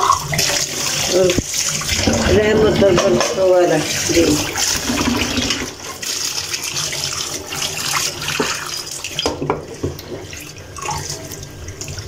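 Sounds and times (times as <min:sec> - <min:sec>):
dishes scrubbed by hand: 0:00.0 - 0:12.0
tap water running into sink: 0:00.0 - 0:12.0
dishes knocking: 0:02.0 - 0:03.6.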